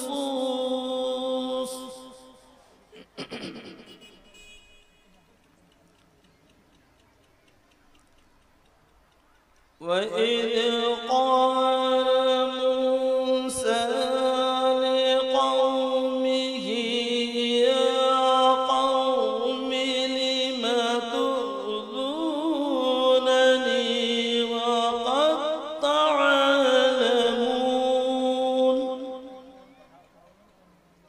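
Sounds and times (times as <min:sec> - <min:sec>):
man chanting melodically through microphone: 0:00.0 - 0:04.3, 0:09.8 - 0:31.0.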